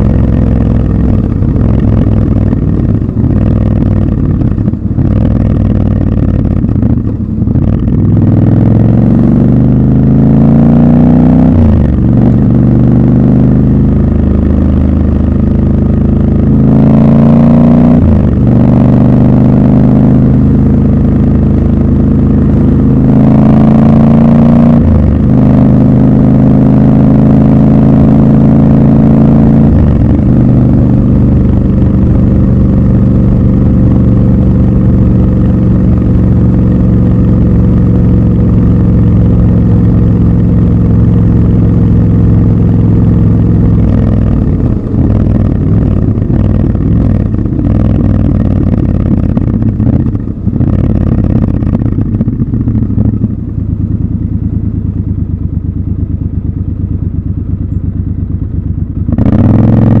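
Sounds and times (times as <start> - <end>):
motorcycle engine running: 0.0 - 60.0.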